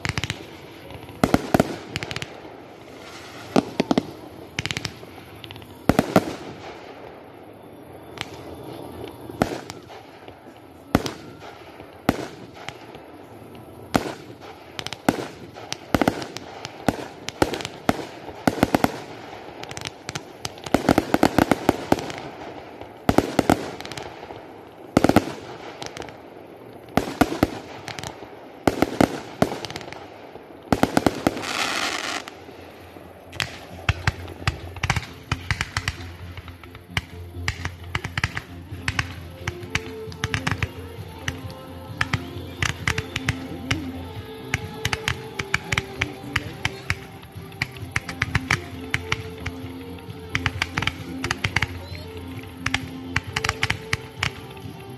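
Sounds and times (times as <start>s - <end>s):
firework hiss: 0.0s - 54.9s
firework shells banging: 33.2s - 54.9s.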